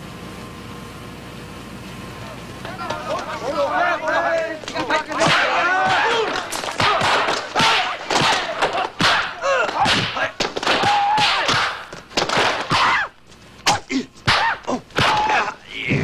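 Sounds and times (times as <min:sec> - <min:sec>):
martial-arts shouts and grunts: 0:02.6 - 0:16.0
punch and kick impacts: 0:05.2 - 0:13.0, 0:13.7 - 0:15.4.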